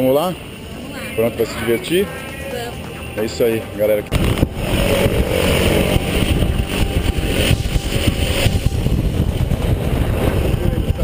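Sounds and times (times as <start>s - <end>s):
small plane engine and propeller: 4.0s - 11.0s
wind buffeting microphone: 4.1s - 11.0s.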